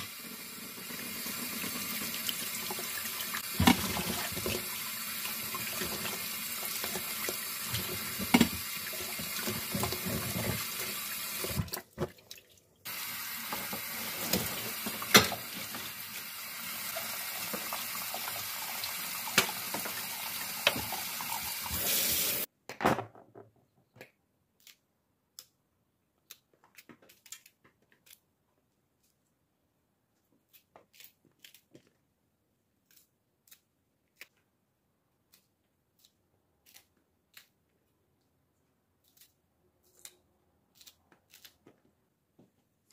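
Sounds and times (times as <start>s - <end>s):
tap water running into sink: 0.0s - 12.1s, 12.9s - 22.5s
knife cutting peppers: 30.4s - 32.0s, 35.2s - 37.8s, 39.0s - 41.8s.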